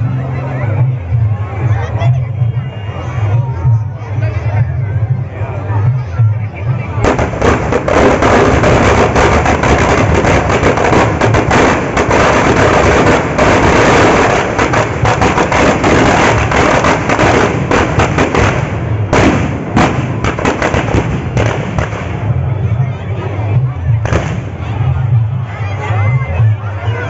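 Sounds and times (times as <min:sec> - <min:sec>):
firecrackers banging and crackling: 0:06.8 - 0:22.8, 0:23.9 - 0:25.2.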